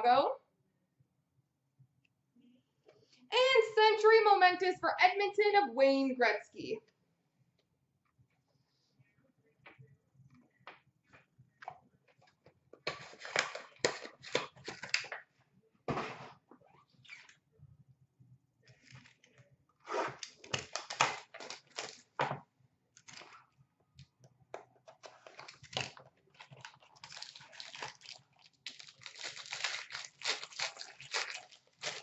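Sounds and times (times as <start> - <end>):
card pack tearing and crinkling: 20.2 - 22.2, 26.6 - 32.0.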